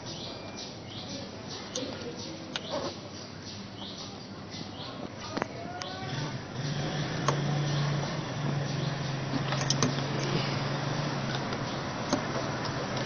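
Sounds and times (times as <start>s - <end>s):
steady low hum: 0.0s - 13.0s
plastic hoses clicking and knocking: 9.3s - 10.4s, 11.3s - 13.0s.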